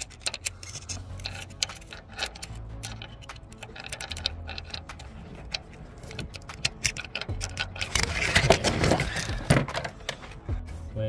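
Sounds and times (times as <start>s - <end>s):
metal pick clicking and tapping: 0.0s - 7.9s
rustling and scraping: 0.0s - 10.5s.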